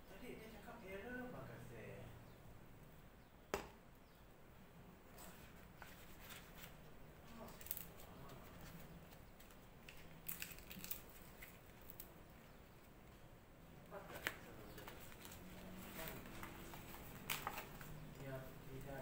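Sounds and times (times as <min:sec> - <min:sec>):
leaf rustling and crinkling: 0:05.9 - 0:12.1.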